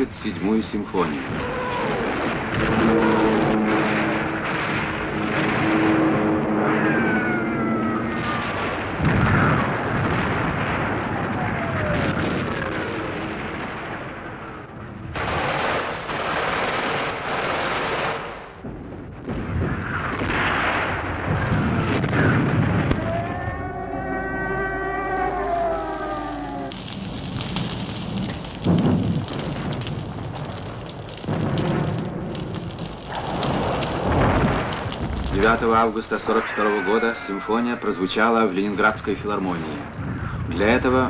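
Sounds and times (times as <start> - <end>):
explosions booming: 0.0 - 36.4
rapid gunfire: 15.1 - 18.6.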